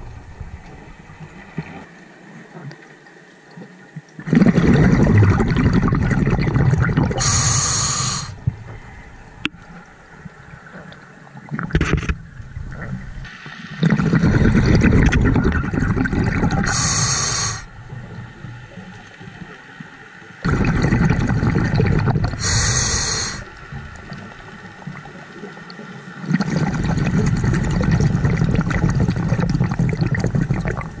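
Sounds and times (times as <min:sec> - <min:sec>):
scuba breathing bubbles: 0:04.2 - 0:08.5, 0:13.8 - 0:17.8, 0:20.4 - 0:24.2, 0:26.2 - 0:31.0
regulator high hiss: 0:07.2 - 0:08.4, 0:16.7 - 0:17.7, 0:22.4 - 0:23.5.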